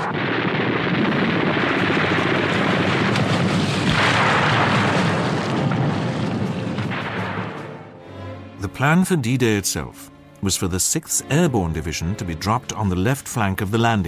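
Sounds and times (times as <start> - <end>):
crackling gunfire: 0.0 - 8.0
explosion booms: 0.0 - 8.0
heavy battle rumble: 0.0 - 8.0.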